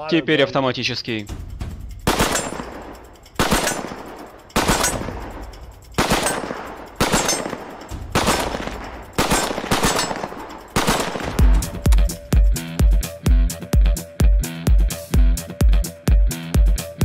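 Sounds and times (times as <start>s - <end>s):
assault rifle automatic bursts: 2.1s - 11.7s
gunshot echo: 2.1s - 11.9s.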